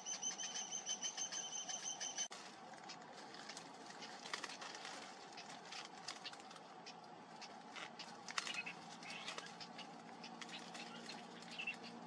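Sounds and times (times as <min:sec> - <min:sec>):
bird chicks begging calls: 0:00.0 - 0:02.3, 0:02.9 - 0:12.0
dry reeds rustling: 0:02.3 - 0:12.0.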